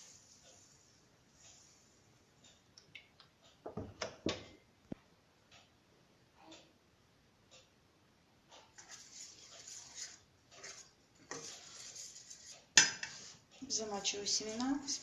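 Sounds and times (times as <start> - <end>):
spoon scraping: 8.8 - 13.4.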